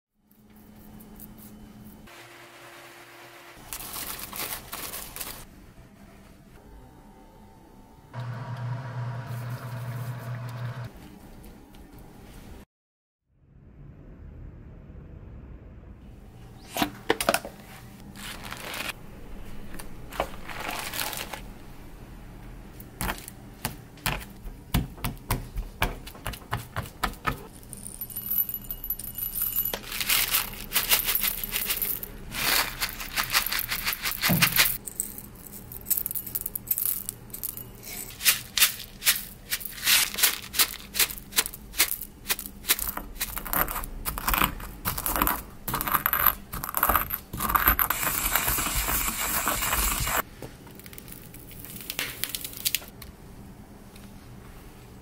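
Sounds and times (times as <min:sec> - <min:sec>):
peppercorns rattling in ceramic mortar: 0:27.4 - 0:50.2
pestle crushing peppercorns: 0:29.5 - 0:35.0, 0:38.1 - 0:50.2.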